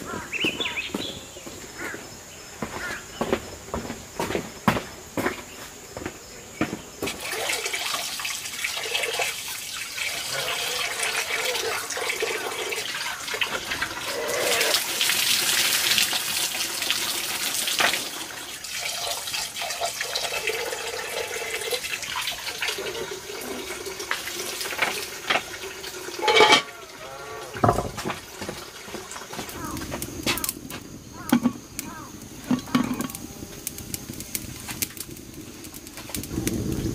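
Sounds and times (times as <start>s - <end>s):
water splashing: 7.0s - 19.9s
water running from a pipe: 7.0s - 30.6s, 31.2s - 36.9s.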